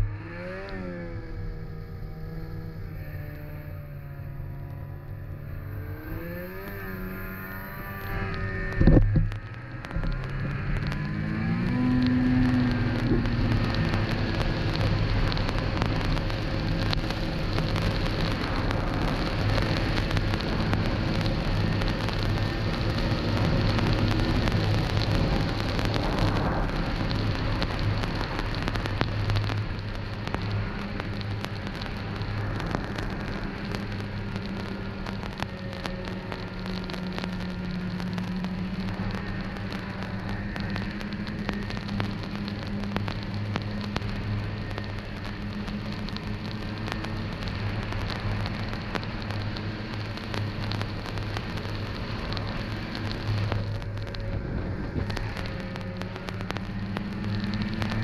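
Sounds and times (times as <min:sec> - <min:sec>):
snowmobile engine revving: 0:00.0 - 0:29.0
dense steady hiss: 0:01.2 - 0:58.0.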